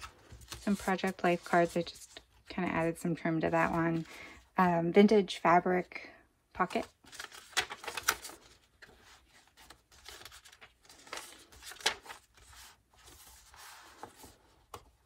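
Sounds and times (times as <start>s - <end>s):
paper pages rustling and tapping: 7.1s - 15.0s.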